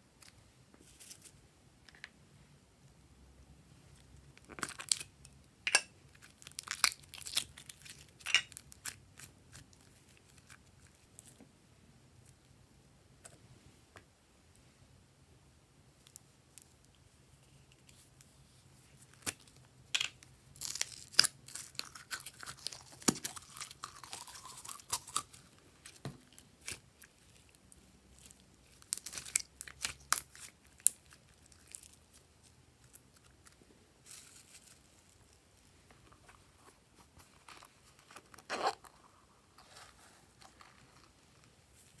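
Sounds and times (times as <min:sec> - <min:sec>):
slime crunching and crinkling: 0:06.1 - 0:11.3, 0:20.6 - 0:35.4.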